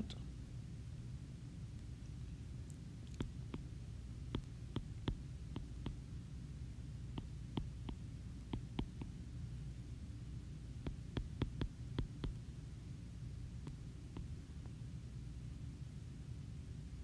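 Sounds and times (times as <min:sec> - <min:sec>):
low hum: 0:00.0 - 0:17.0
stylus tapping on glass screen: 0:04.4 - 0:06.0, 0:07.2 - 0:09.2, 0:10.9 - 0:12.4.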